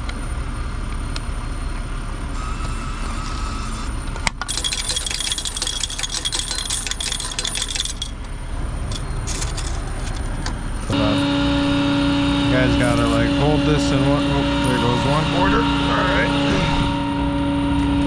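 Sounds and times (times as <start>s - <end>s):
coins clattering out: 4.5s - 8.2s, 8.9s - 10.2s
steady low rumble: 8.1s - 18.0s.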